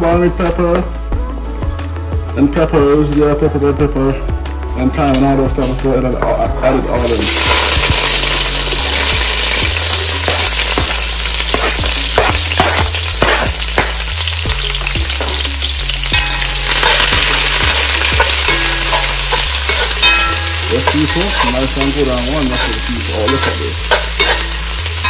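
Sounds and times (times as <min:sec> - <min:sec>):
vegetables sizzling in hot oil: 0:07.0 - 0:25.0
metal spoon scraping a pot: 0:16.1 - 0:24.6.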